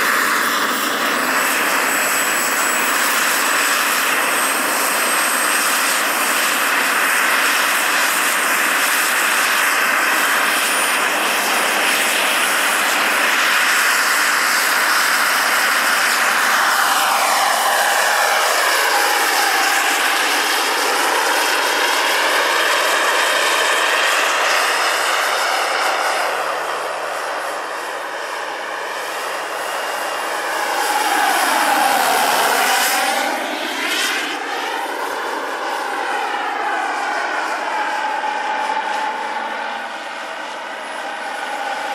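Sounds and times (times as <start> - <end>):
model helicopter turbine whine: 0.0 - 41.9
falling swerving whine: 15.2 - 41.9.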